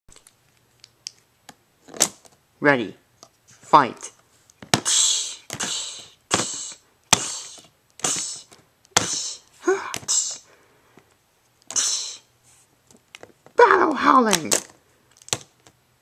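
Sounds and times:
mouth-made hissing bursts: 4.8 - 10.5, 11.7 - 12.3
person grunting: 4.8 - 10.5, 11.7 - 12.3.

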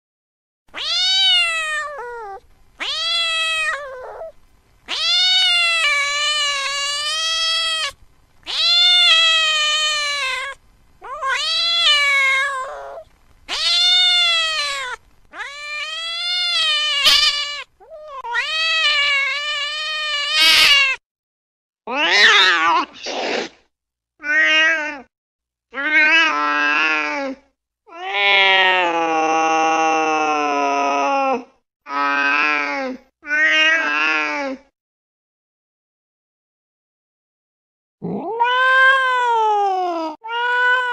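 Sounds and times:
cat meowing: 0.7 - 21.0, 21.9 - 23.0, 38.0 - 40.9
cat yowling: 0.7 - 21.0, 21.9 - 23.0, 38.0 - 40.9.

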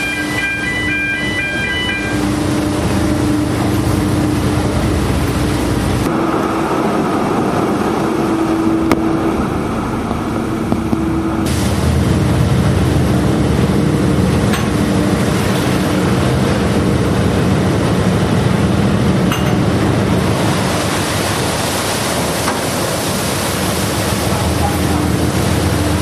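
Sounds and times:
engine humming: 0.0 - 26.0.

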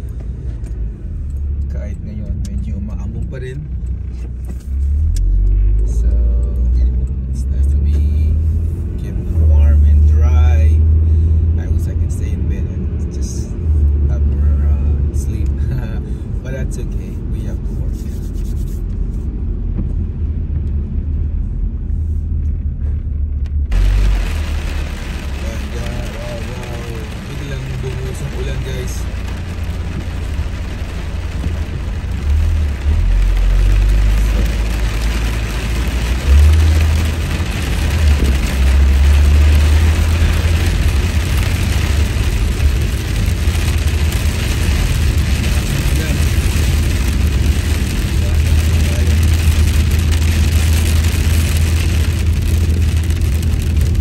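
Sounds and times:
car driving rumble: 0.0 - 54.0
tyres hissing on wet pavement: 23.7 - 54.0.

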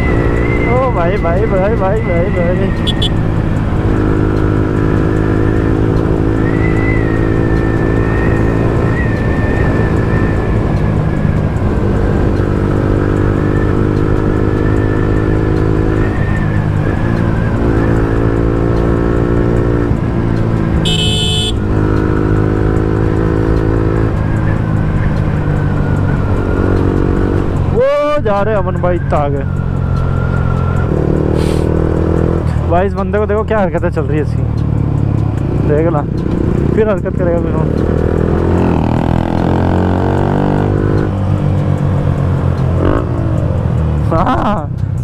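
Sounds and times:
motorcycle engine running: 1.0 - 9.1, 17.3 - 28.1.

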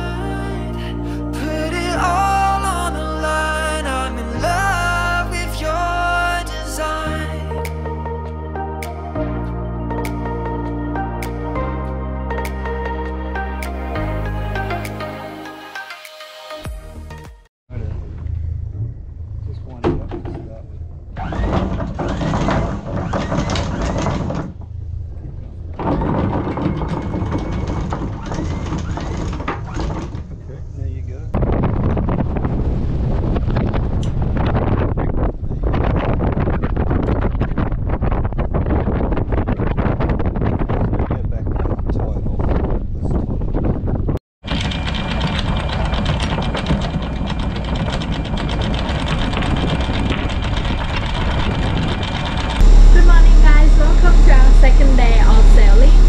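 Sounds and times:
wind rumble on microphone: 17.7 - 56.0
anchor chain rattling: 44.4 - 52.6
windlass motor whine: 44.4 - 56.0.

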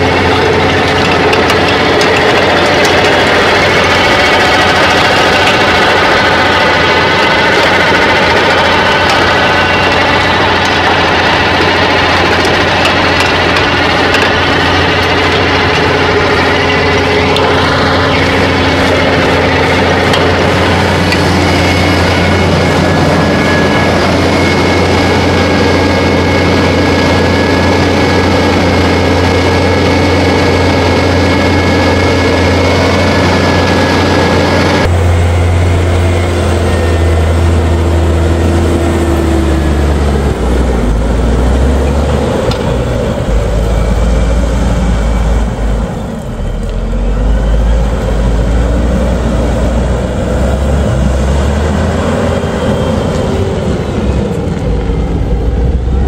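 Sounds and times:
held whining tones: 0.0 - 56.0
tractor engine running under load: 0.0 - 56.0.

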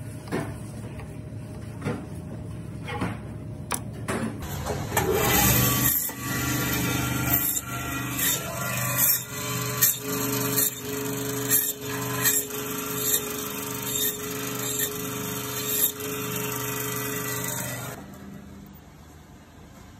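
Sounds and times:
band saw motor hum: 4.4 - 18.1.

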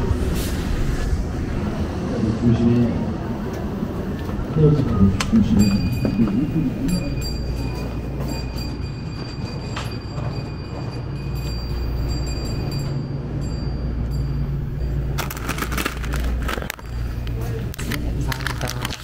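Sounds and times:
refrigerated display cases humming: 1.2 - 19.0
plastic packaging rustling: 15.2 - 17.0, 17.8 - 19.0.

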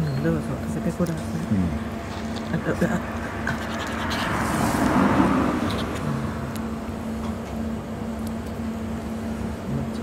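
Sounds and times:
steady low hum: 0.0 - 10.0
vehicle passing: 2.6 - 7.0.

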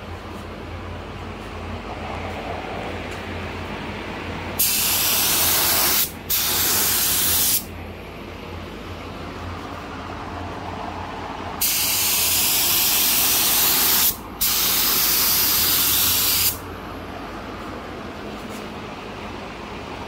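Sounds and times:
spray gun hissing: 4.6 - 7.7, 11.6 - 16.6.

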